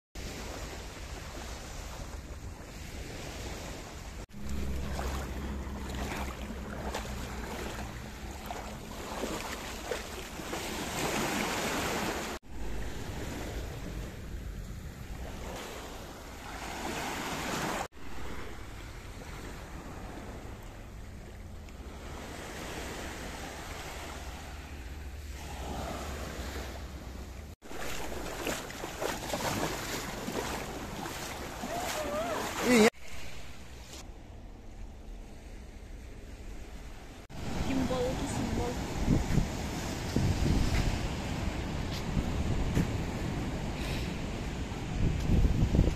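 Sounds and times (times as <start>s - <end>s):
sea waves washing over rocks: 3.3s - 14.3s, 27.6s - 34.0s
wind rumbling on microphone: 36.2s - 45.9s.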